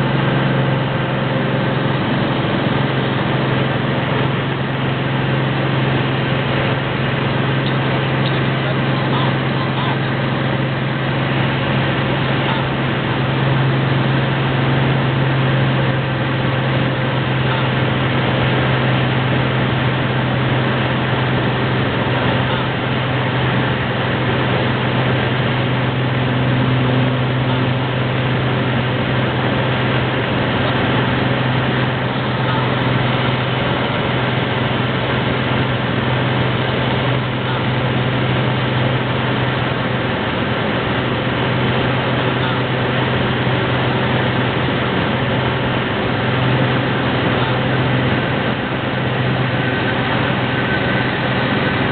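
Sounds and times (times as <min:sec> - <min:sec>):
airplane engine droning in cabin: 0:00.0 - 0:51.9.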